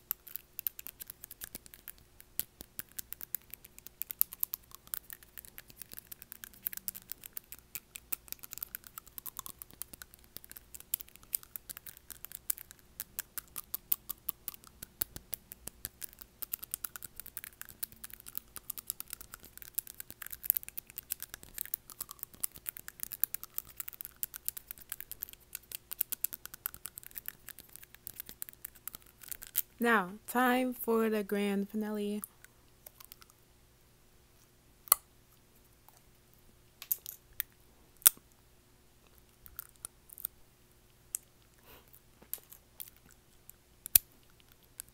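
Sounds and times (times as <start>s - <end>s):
fingernails tapping on teeth: 0.1s - 29.6s.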